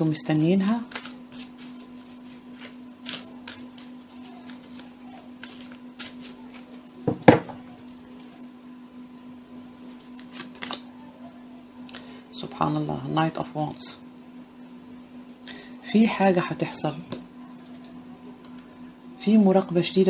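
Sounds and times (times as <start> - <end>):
steady low hum: 0.0 - 20.0
cards being shuffled: 0.2 - 8.5, 9.2 - 10.8.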